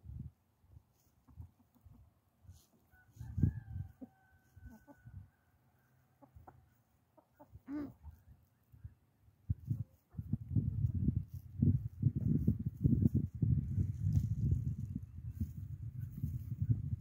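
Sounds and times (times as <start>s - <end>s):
hens clucking: 1.0s - 8.5s.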